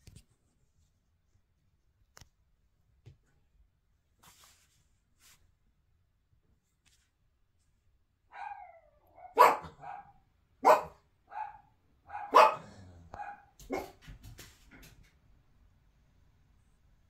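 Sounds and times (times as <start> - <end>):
small dog barking: 8.3 - 14.0.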